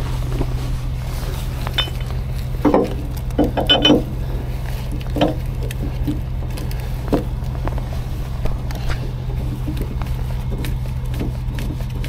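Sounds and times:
truck engine idling: 0.0s - 12.0s
metal chains clanking: 1.7s - 4.2s.

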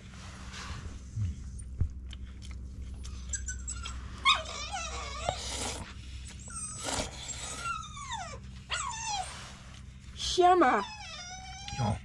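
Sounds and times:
dog whining and whimpering: 3.0s - 9.6s, 10.2s - 12.0s.

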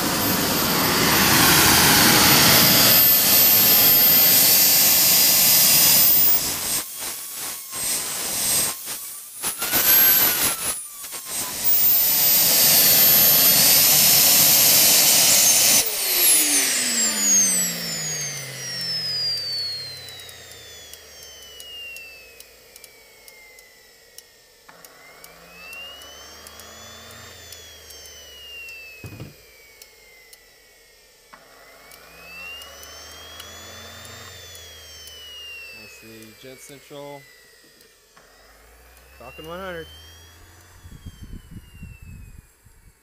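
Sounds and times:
starter motor spinning turbine: 0.0s - 43.0s
turbine whine: 0.0s - 43.0s.

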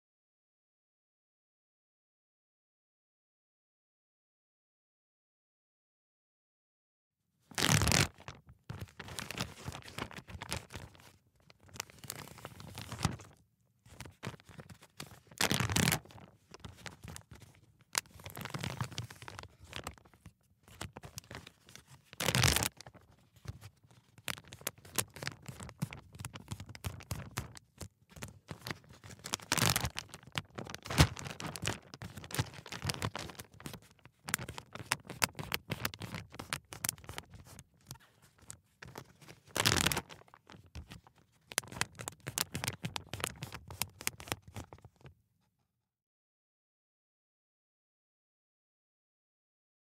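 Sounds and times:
plastic bag crinkling: 7.5s - 45.1s.

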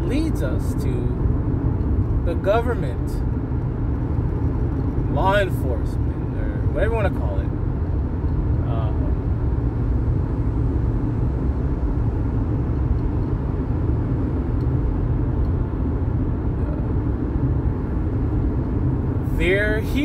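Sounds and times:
car road and engine rumble: 0.0s - 20.0s.

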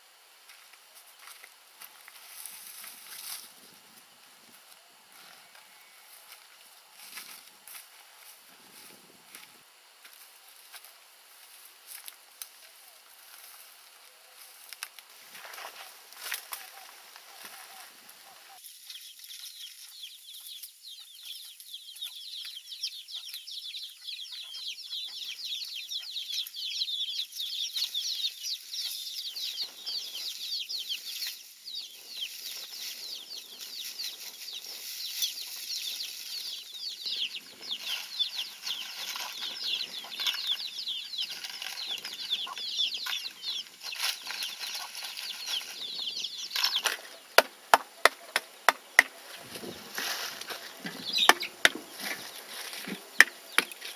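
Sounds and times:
chicks peeping: 15.4s - 53.9s
soft rustling and scraping: 49.2s - 53.9s.

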